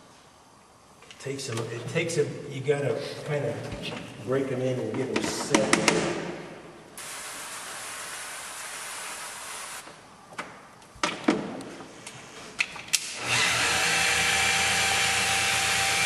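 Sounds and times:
hiss: 7.0s - 9.8s.

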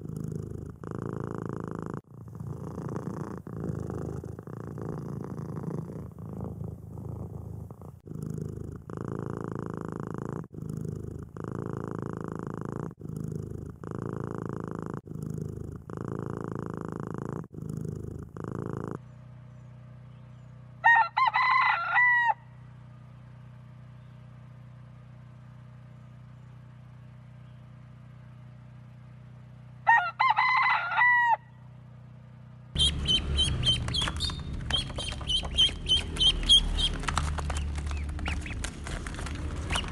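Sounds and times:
kitten purring: 0.0s - 19.0s, 32.7s - 39.9s
rooster crowing: 20.8s - 22.6s, 29.8s - 31.6s
ducklings peeping: 32.8s - 38.7s, 39.6s - 39.9s.

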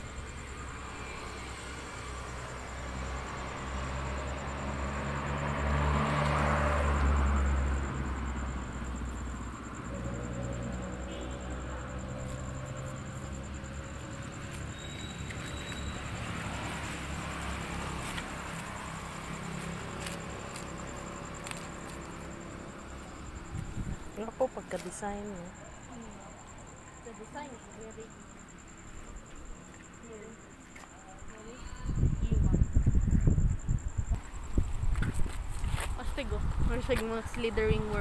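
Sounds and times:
vehicle engine rumbling: 0.0s - 28.1s
traffic hum: 0.0s - 38.0s.

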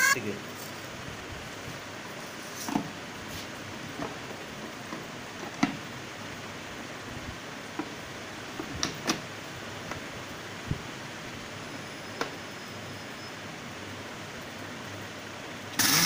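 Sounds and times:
steady low hiss: 0.1s - 15.9s.

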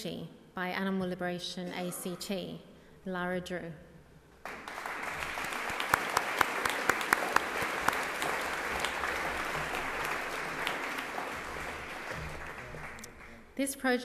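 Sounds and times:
sharp close claps: 4.4s - 13.4s
audience applauding: 4.4s - 13.5s.

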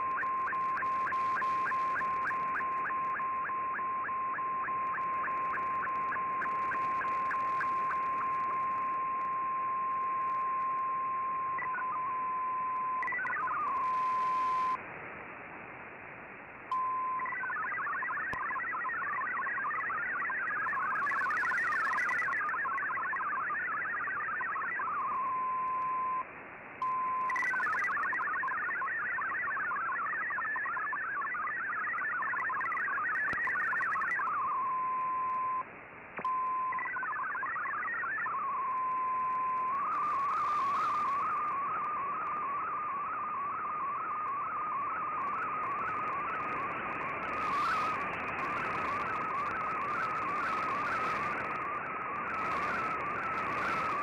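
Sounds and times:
hopping digital data tones: 0.0s - 14.8s, 16.7s - 26.2s, 26.8s - 35.6s, 36.2s - 54.0s
warbling data tone: 0.0s - 14.8s, 16.7s - 26.2s, 26.8s - 35.6s, 36.2s - 54.0s
radio crackles: 0.0s - 54.0s
radio static hiss: 0.0s - 54.0s.

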